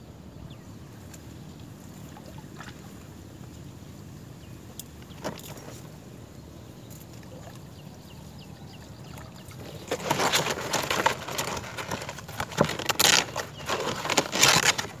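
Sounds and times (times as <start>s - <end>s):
rustling and crackling: 9.5s - 15.0s.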